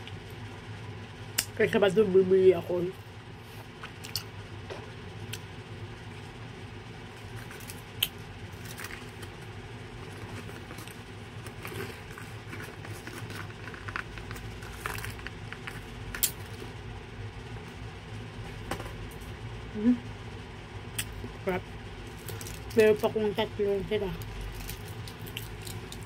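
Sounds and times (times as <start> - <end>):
steady low hum: 0.0 - 26.0
chewing chocolate: 24.2 - 26.0.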